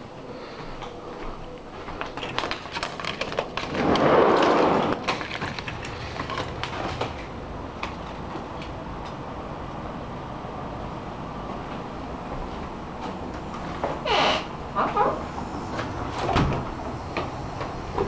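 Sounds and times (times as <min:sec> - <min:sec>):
steady outdoor hum: 0:00.0 - 0:18.0
sliding glass door rumbling open: 0:03.6 - 0:07.4, 0:13.5 - 0:18.0.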